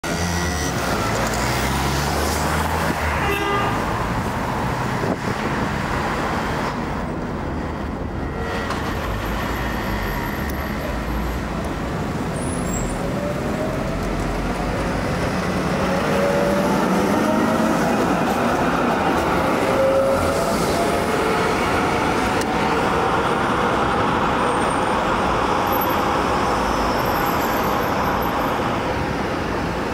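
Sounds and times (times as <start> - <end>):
cars passing: 0.0 - 29.9
tram running on tracks: 0.0 - 29.9.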